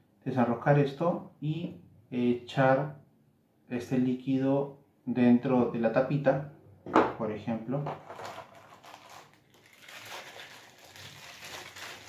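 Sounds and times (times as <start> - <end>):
plastic bag crinkling: 8.0 - 12.0.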